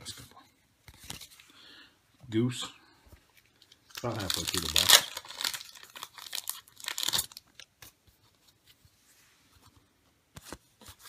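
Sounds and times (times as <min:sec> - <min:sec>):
wrapper tearing and crinkling: 0:03.8 - 0:07.7.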